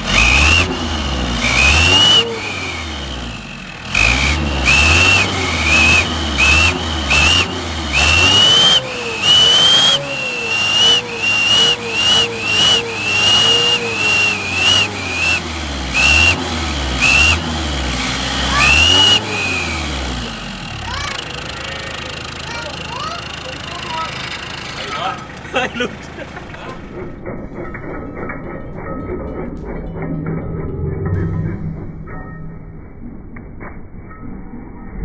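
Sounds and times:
engine throttle blips: 0.0s - 35.0s
exhaust whistle shrilling: 4.0s - 17.6s, 18.5s - 20.0s.

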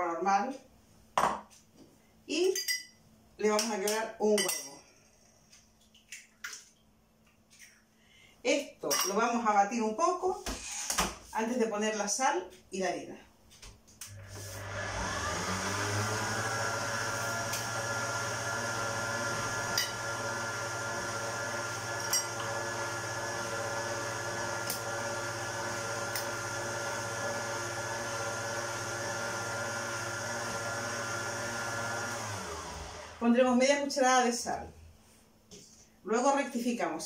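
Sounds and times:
stand mixer motor whining: 14.1s - 33.3s.

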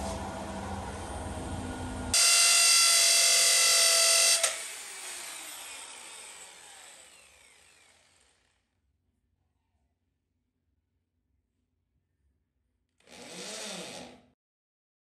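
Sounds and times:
high electric motor whine: 0.0s - 8.4s.

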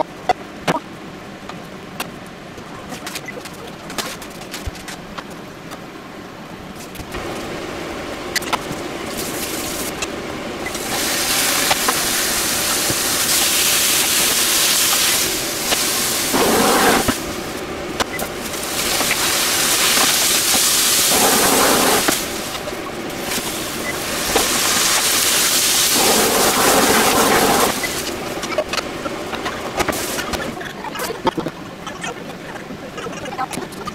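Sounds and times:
water boiling and bubbling: 0.0s - 33.6s.

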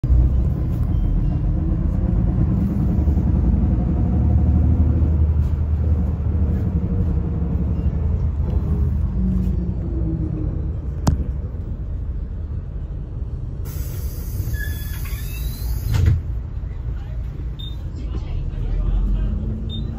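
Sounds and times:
coach engine and road rumble: 0.0s - 19.9s
faint engine hum: 0.0s - 19.9s.

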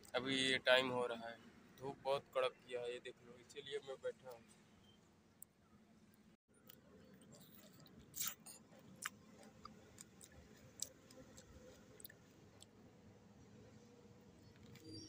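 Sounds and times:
man chewing tomato: 6.6s - 12.8s.

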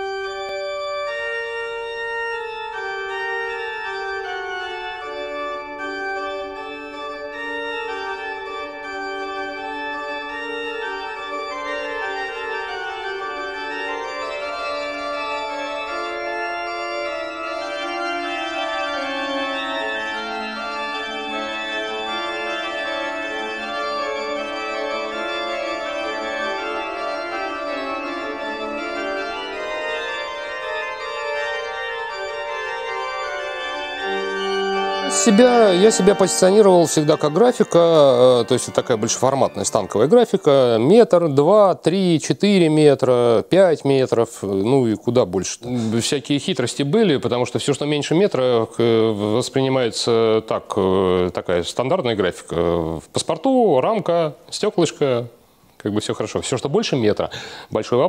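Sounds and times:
slow sustained chords music: 0.0s - 40.9s.

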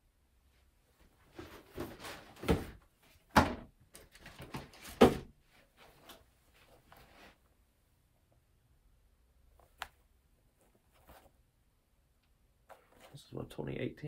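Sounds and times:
sneakers rustling and scraping: 1.0s - 3.2s, 10.6s - 11.4s.

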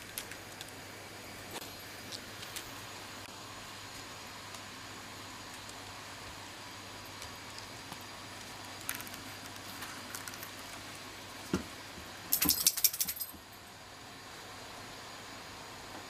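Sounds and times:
metallic jingling: 12.3s - 13.4s.

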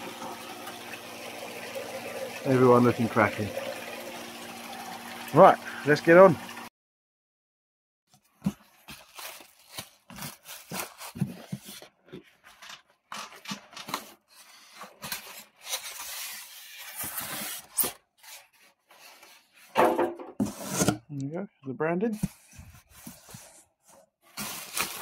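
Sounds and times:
plastic wrap crinkling: 8.3s - 13.6s, 24.3s - 25.0s.

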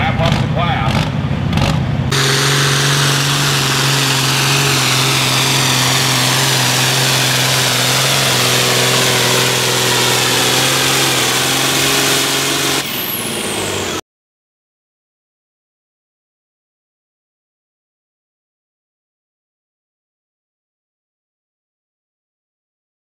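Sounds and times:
tractor diesel engine under load: 0.0s - 14.0s.

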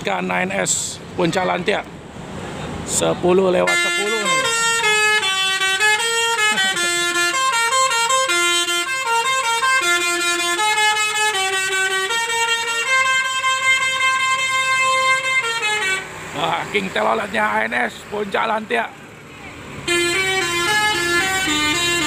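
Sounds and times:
bus horn playing a tune: 3.6s - 16.3s, 19.8s - 22.0s.

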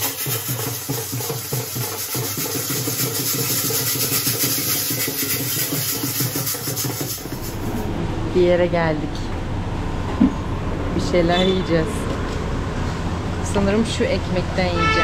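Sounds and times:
music with quick drumbeat: 0.0s - 7.3s
street noise: 0.0s - 15.0s.

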